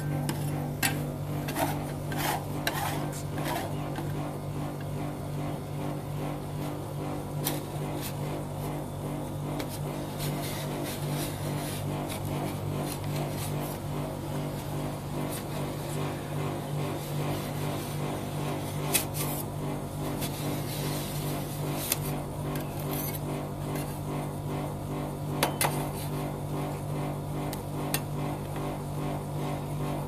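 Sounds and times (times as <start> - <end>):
metal scraper on steel pan: 0.0 - 4.3, 18.7 - 19.5, 20.2 - 24.0, 25.4 - 26.2
machine humming: 0.0 - 30.0.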